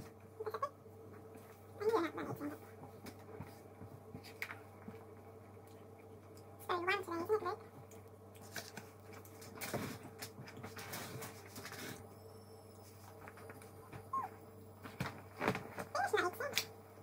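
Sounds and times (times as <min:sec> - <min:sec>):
toddler eating clicks and rustles: 0:00.5 - 0:12.1.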